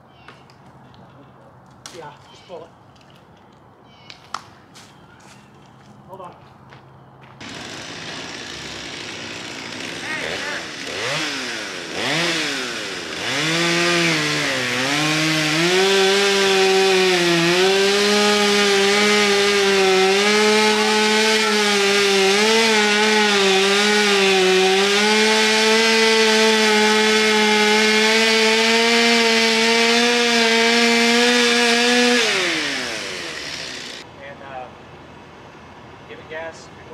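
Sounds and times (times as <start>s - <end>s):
chainsaw cutting tree trunk: 7.4s - 34.1s.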